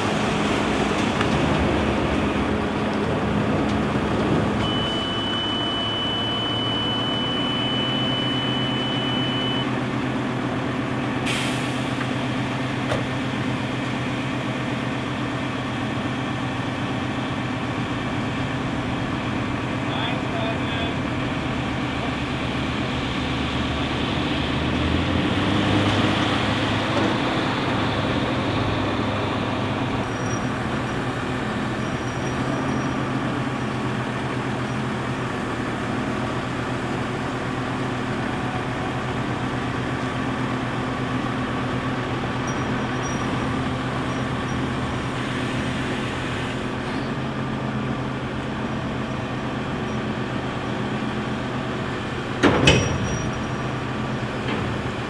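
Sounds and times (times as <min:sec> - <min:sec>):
engine and pumps humming: 0:26.1 - 0:55.0.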